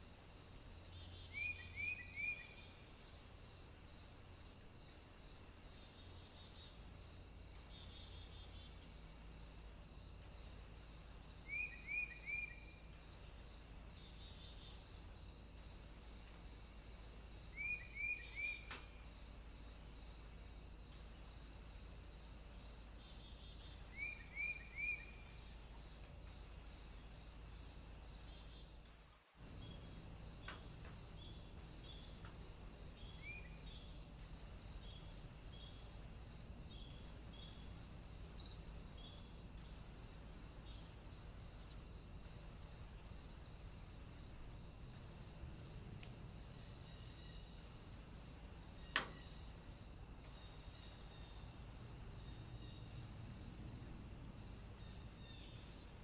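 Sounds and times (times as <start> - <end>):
insects buzzing: 0.0 - 56.0
pulsing insect chirp: 0.0 - 56.0
sharp click: 48.9 - 49.2.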